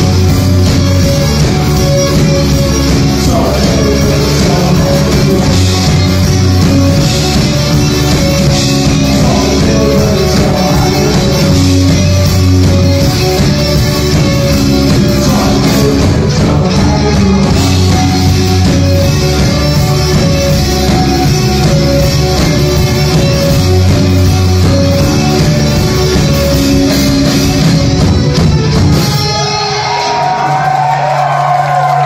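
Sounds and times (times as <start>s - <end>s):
keyboards: 0.0s - 30.4s
electric guitars: 0.0s - 32.0s
sustained bass notes: 0.0s - 32.0s.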